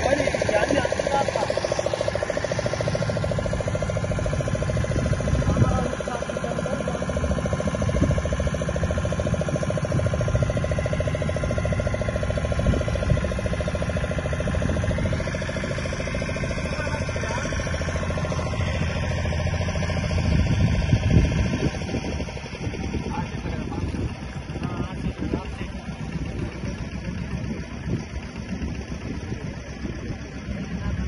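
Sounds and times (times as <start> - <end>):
motorboat engine running: 0.0 - 31.0
wind noise on microphone: 3.5 - 6.0, 7.6 - 15.8, 19.6 - 31.0.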